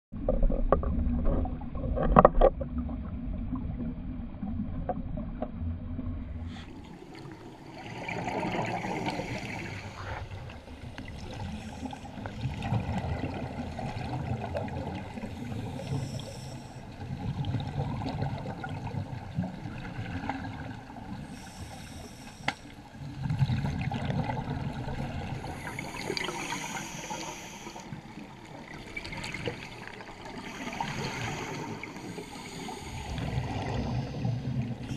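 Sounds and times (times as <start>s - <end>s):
bubbles rushing and gurgling: 0.1s - 21.5s, 22.9s - 34.9s
steady watery hiss: 6.4s - 12.7s, 14.8s - 17.2s, 20.9s - 23.2s, 24.8s - 34.9s
scuba diver breathing through regulator: 8.6s - 10.4s, 11.3s - 12.2s, 15.4s - 16.9s, 21.2s - 22.8s, 25.4s - 28.1s, 30.4s - 34.9s.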